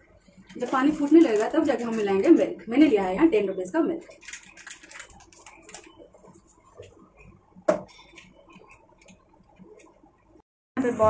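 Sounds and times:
plastic packet crinkling: 4.0s - 5.9s.

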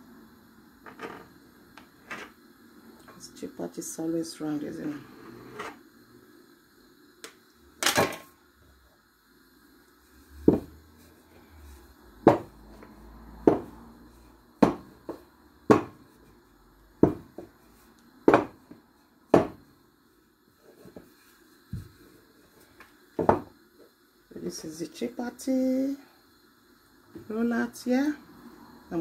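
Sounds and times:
rolling pin knocking on worktop: 10.4s - 10.8s, 12.2s - 12.5s, 13.4s - 13.8s, 14.6s - 16.0s, 17.0s - 17.5s, 18.2s - 18.7s, 19.3s - 19.6s, 23.2s - 23.5s.

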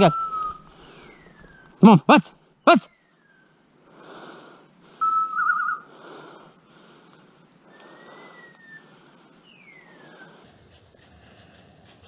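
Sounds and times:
faint thin gliding whistles: 0.0s - 1.8s, 2.4s - 3.7s, 5.0s - 6.5s, 7.6s - 10.6s
loud short warbling whistle: 5.0s - 5.8s.

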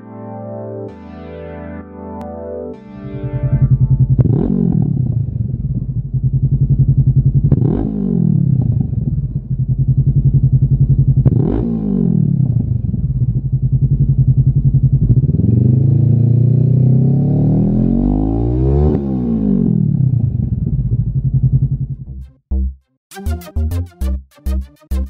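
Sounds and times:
motorcycle engine idling and revving: 3.2s - 22.2s.

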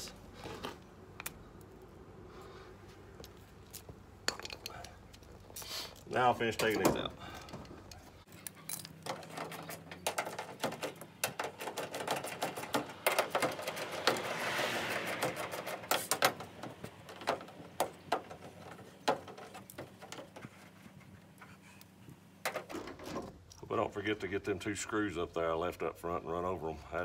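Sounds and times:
hand tool clicking and rattling: 6.6s - 14.3s, 15.0s - 20.4s.

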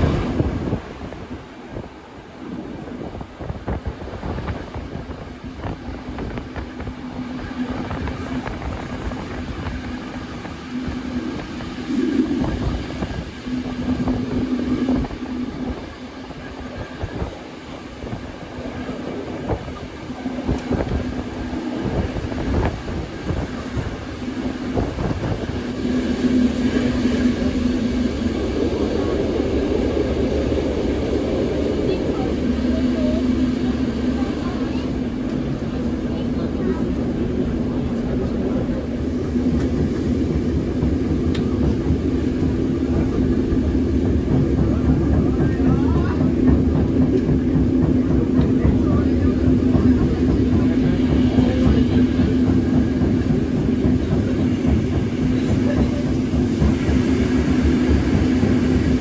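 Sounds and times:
train rumble: 0.0s - 59.0s
low hum: 4.4s - 59.0s
train wheels clattering: 19.3s - 59.0s.

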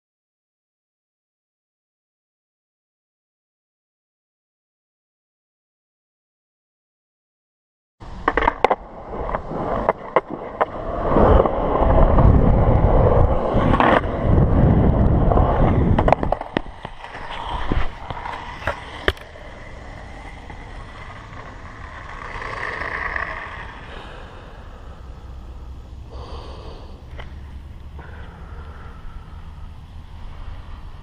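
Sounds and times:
quiet steady noise: 8.0s - 31.0s
skateboard wheels rolling on concrete: 8.0s - 31.0s
skateboard clacks: 8.1s - 23.9s.

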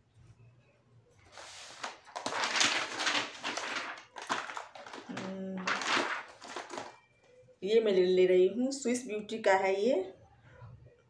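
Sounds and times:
makeup packaging rustling and clattering: 1.3s - 7.0s.

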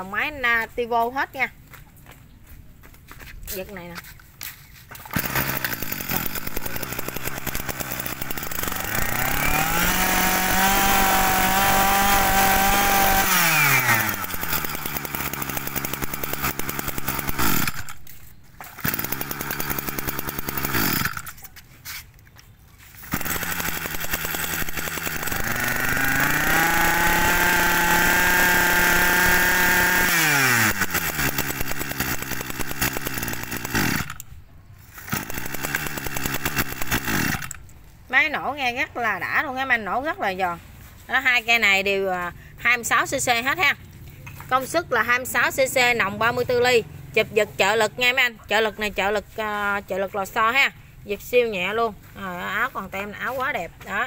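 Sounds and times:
brush cutter engine revving: 4.9s - 21.7s, 22.8s - 38.5s.

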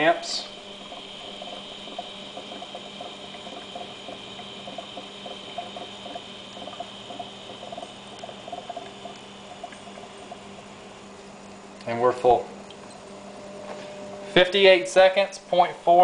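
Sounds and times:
gas bubbling under water: 0.0s - 11.8s
electrical hum: 0.0s - 16.0s.

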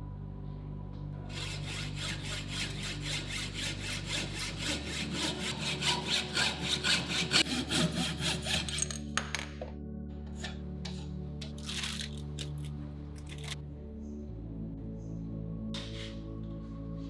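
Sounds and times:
hacksaw cutting metal tube: 1.3s - 9.1s.

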